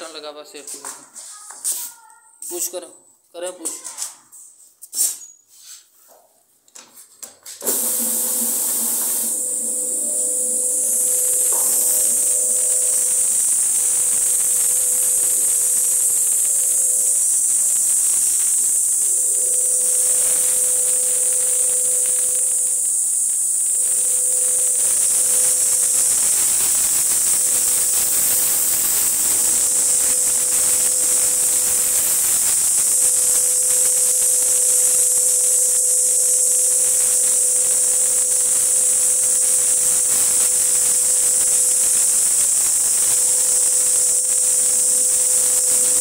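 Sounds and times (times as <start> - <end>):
floor scrubber running: 7.6 - 46.0.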